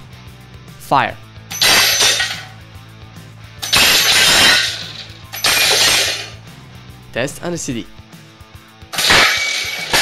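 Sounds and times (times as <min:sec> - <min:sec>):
background music: 0:00.0 - 0:10.0
ceramic tile shattering: 0:01.5 - 0:02.5, 0:03.6 - 0:06.4, 0:09.0 - 0:10.0.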